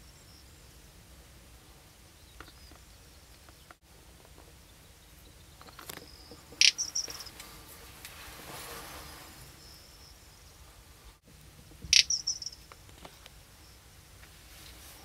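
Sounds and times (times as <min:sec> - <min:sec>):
bird dry loud call: 0:06.6 - 0:07.4, 0:11.9 - 0:12.6.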